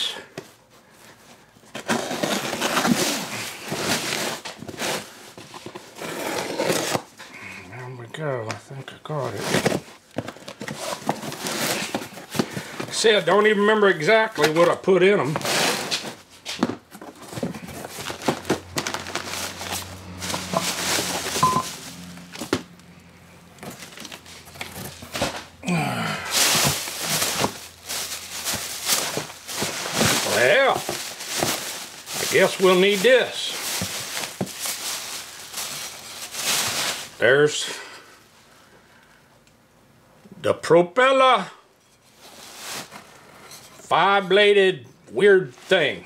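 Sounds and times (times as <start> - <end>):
cardboard rustling and scraping: 1.0 - 7.3, 9.1 - 22.8, 23.5 - 25.6, 26.3 - 37.3, 42.0 - 43.8.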